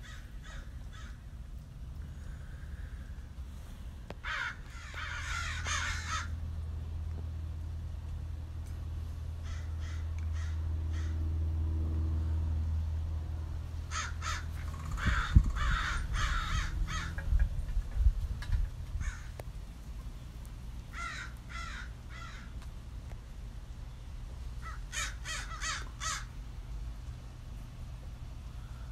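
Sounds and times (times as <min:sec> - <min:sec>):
crows cawing: 0:00.0 - 0:01.3, 0:04.2 - 0:06.4, 0:09.4 - 0:11.4, 0:13.9 - 0:17.4, 0:19.0 - 0:19.4, 0:20.9 - 0:22.6, 0:24.6 - 0:26.4
steady low rumble: 0:00.0 - 0:28.9.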